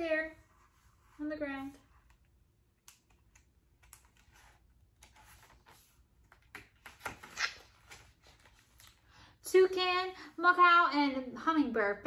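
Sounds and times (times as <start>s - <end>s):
book pages rustling: 0.4s - 9.1s.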